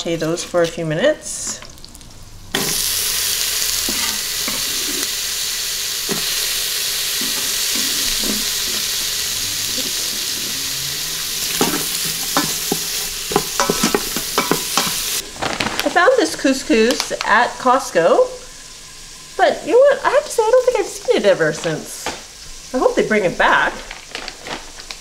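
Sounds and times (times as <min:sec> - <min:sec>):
onions sizzling in oil: 0:01.3 - 0:25.0
wooden spoon scraping pot: 0:07.2 - 0:09.1.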